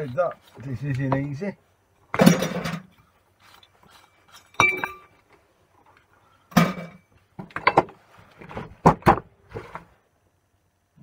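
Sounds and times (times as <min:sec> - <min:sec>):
small metal parts clinking: 0:03.5 - 0:05.2.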